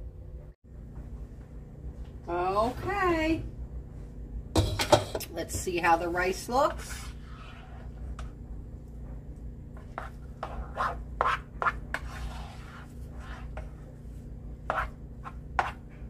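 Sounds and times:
plastic spoon scraping rice pan: 0:09.8 - 0:13.9.

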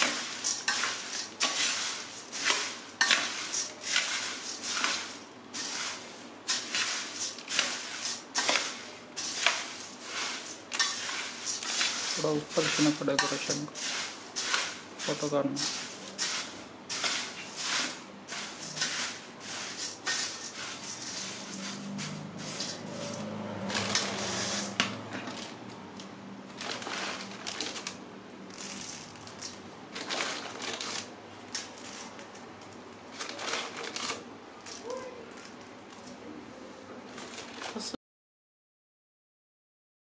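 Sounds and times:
spoon scraping metal bowl: 0:00.0 - 0:25.4
puffed rice rustling and crunching: 0:00.0 - 0:25.6, 0:26.5 - 0:36.2, 0:37.1 - 0:37.9.

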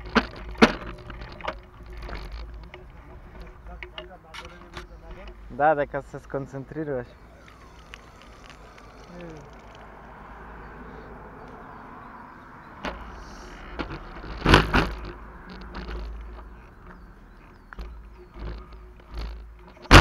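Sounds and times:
sharp knocks and bumps: 0:00.0 - 0:06.4, 0:12.8 - 0:20.0.

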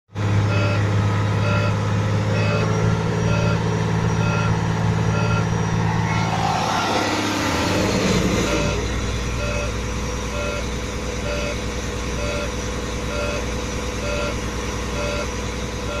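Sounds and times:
diesel truck engine at high idle: 0:00.1 - 0:16.0
short beeps: 0:00.5 - 0:00.8, 0:01.4 - 0:06.3, 0:08.4 - 0:16.0.

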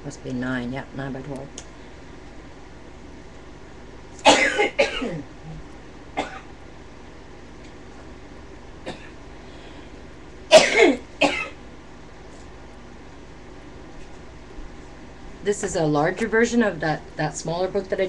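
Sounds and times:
person coughing: 0:04.2 - 0:05.3, 0:06.2 - 0:06.5, 0:08.9 - 0:09.2, 0:10.5 - 0:11.6.

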